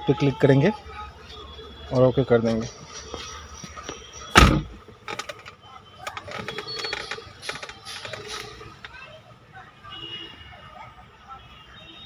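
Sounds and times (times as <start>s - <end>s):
light clicks and rattles: 5.0s - 9.0s.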